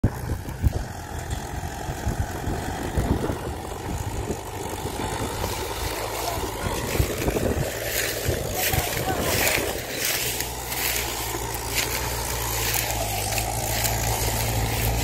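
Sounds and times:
tractor diesel engine rumbling: 0.0s - 15.0s.

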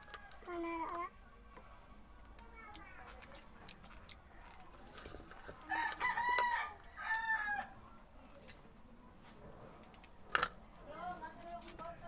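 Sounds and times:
rooster crowing: 5.7s - 7.8s.

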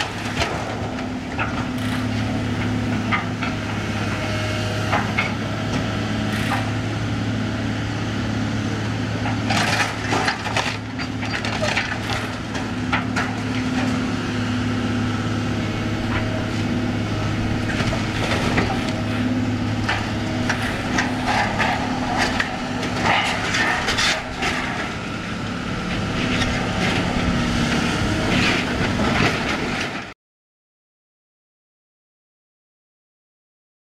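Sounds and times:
excavator diesel engine running: 0.0s - 30.2s
wood cracking and splintering: 9.3s - 14.0s, 19.8s - 25.1s.

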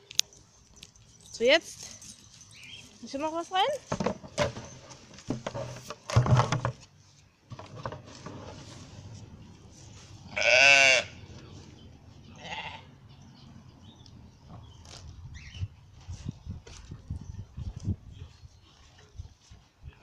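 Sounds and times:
sheep bleating: 10.3s - 11.2s, 12.4s - 12.9s.

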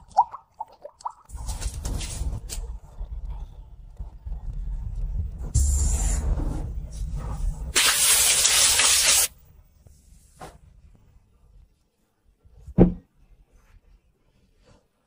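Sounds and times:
soda fizzing hiss: 7.8s - 9.3s.

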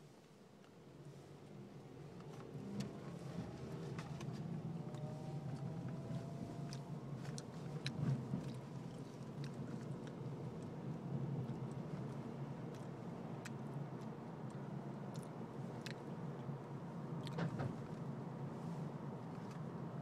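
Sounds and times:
car engine and road rumble: 0.0s - 20.0s
faint rising whine: 1.5s - 7.2s.

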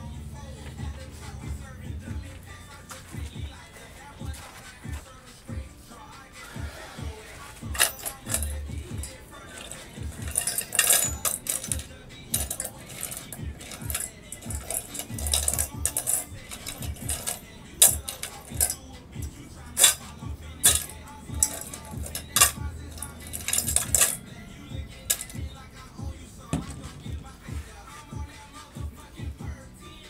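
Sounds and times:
background music with low beat: 0.0s - 30.0s
metallic clinks of steel cup: 7.8s - 18.8s, 25.0s - 25.4s.

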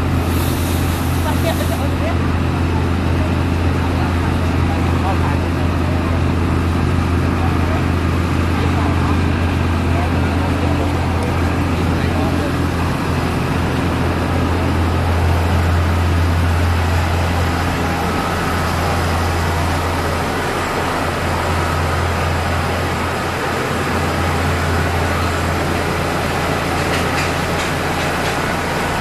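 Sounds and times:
machinery humming and rushing: 0.0s - 29.0s.

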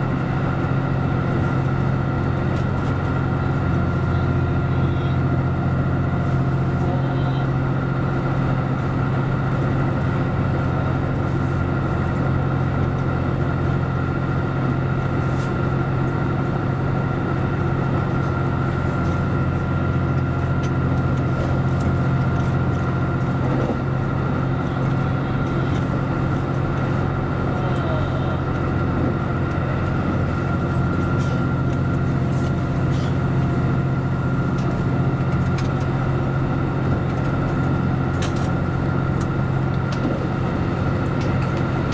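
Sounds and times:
diesel train engine drone: 0.0s - 41.9s
train wheels on rail: 27.6s - 33.8s.

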